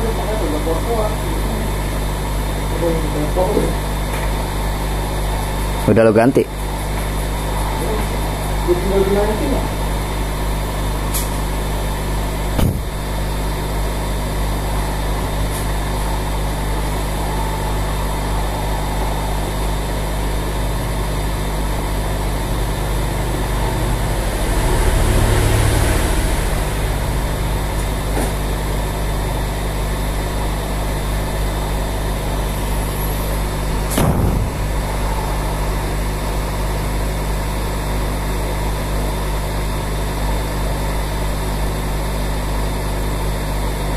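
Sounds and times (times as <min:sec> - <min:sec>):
hot air station fan blowing: 0:00.0 - 0:43.9.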